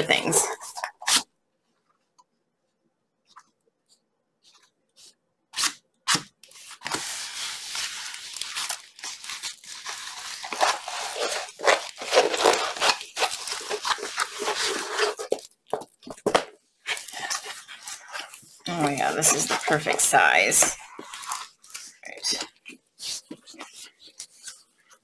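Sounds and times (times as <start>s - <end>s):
paper crinkling and crackling: 6.4s - 25.0s.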